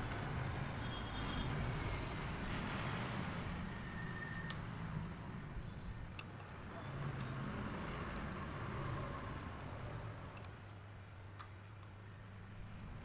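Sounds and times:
metallic spanner clicks: 0:04.2 - 0:04.7, 0:05.6 - 0:08.4, 0:09.5 - 0:12.0.

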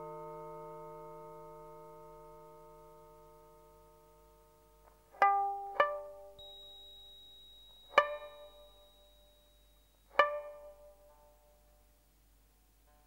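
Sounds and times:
faint high held tone: 0:00.0 - 0:11.9
plucked string instrument notes: 0:04.8 - 0:06.5, 0:07.8 - 0:09.4, 0:10.1 - 0:11.6.

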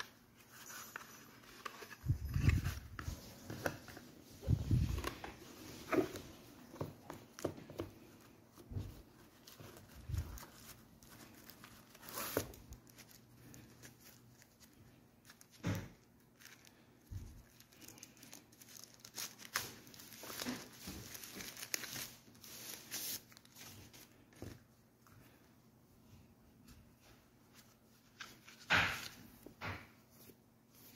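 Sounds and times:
paper rustling: 0:00.0 - 0:25.4
plastic crinkling: 0:07.1 - 0:24.6.

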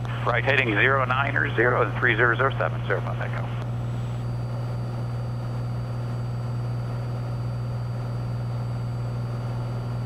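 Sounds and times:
airplane engine and propeller droning: 0:00.0 - 0:10.0.

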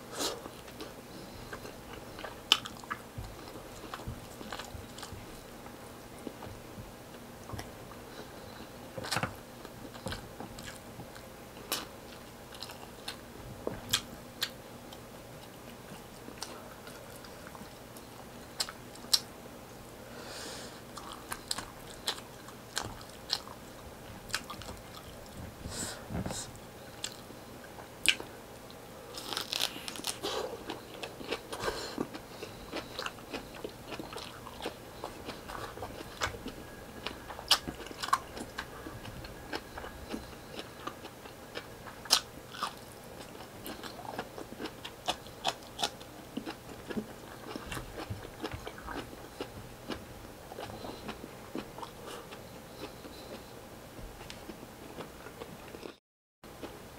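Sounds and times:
close chewing mouth sounds: 0:00.4 - 0:05.5, 0:07.1 - 0:13.2, 0:20.9 - 0:25.5, 0:26.2 - 0:27.3, 0:29.1 - 0:53.5, 0:54.2 - 0:56.0.

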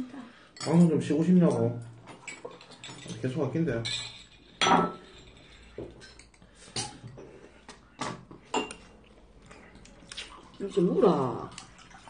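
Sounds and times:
person eating: 0:08.8 - 0:10.7.

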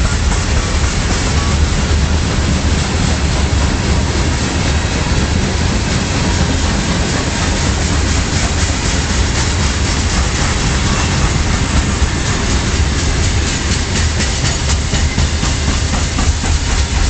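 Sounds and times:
freight train wheels rumbling: 0:00.0 - 0:17.0.

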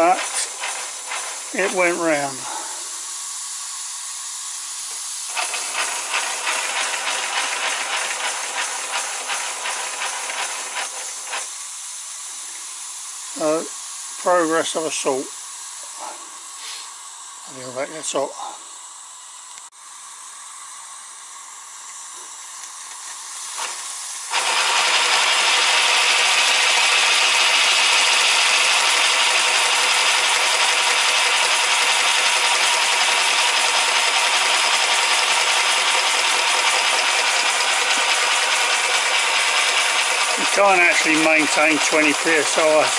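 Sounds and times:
steam hissing from boiler: 0:00.0 - 0:42.9.

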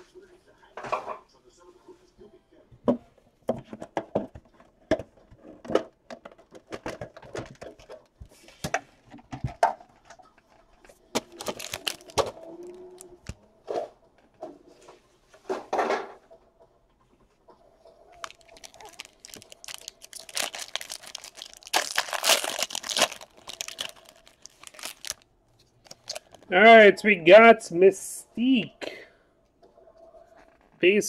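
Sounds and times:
foil pack crinkling: 0:11.2 - 0:13.0, 0:18.2 - 0:26.5.

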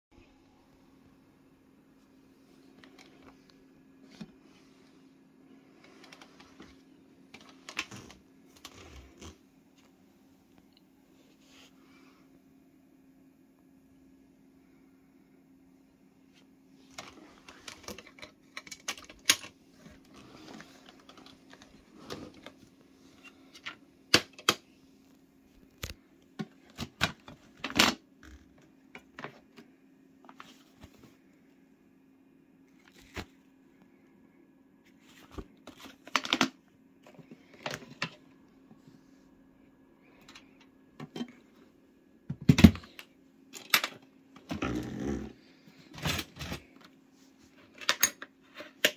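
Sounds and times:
faint steady hum: 0:00.1 - 0:48.9
plastic clicks and rattles: 0:17.0 - 0:19.6.

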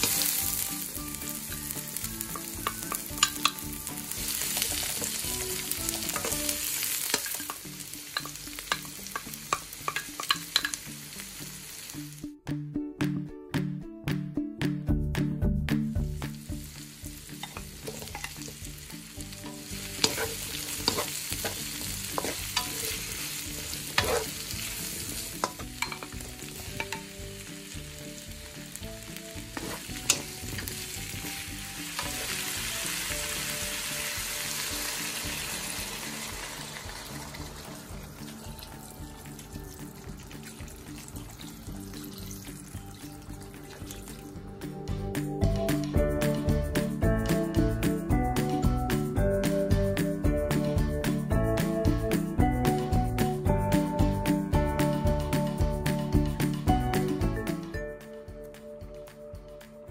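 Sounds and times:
vegetables sizzling in a pan: 0:00.0 - 0:12.2, 0:16.1 - 0:44.5.

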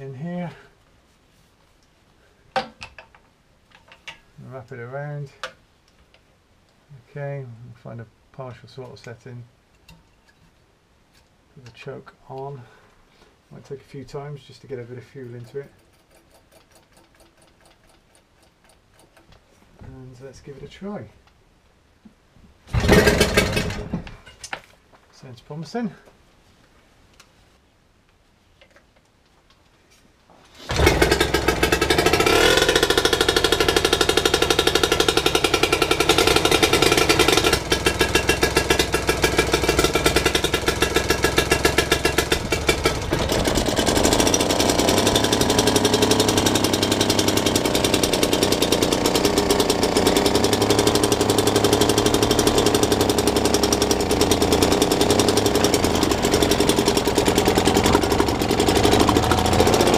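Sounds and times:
starter cord pull: 0:22.7 - 0:24.0, 0:30.7 - 0:59.9
outboard engine running: 0:22.8 - 0:23.7, 0:30.7 - 0:59.9.

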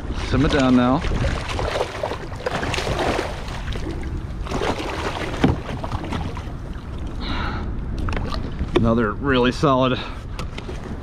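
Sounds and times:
fish splashing and thrashing: 0:00.0 - 0:07.2
wind rumble on microphone: 0:00.0 - 0:11.0.

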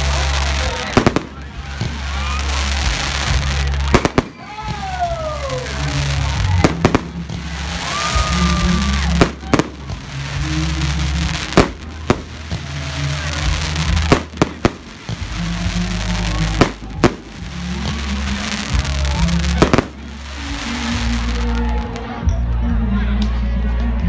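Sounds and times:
fireworks bangs: 0:00.0 - 0:22.2.

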